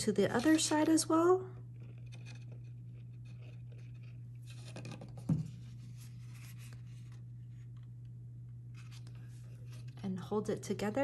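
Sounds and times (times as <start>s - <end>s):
cardstock rustling and scraping: 0.0s - 1.1s, 1.7s - 7.8s, 8.7s - 10.0s
steady low hum: 0.0s - 11.0s.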